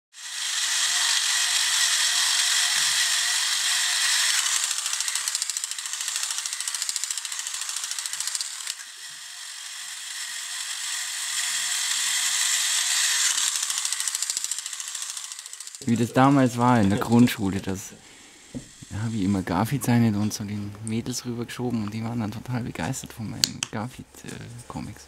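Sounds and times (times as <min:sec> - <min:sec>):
toy robot motor clattering: 0:00.2 - 0:16.1, 0:18.4 - 0:19.4.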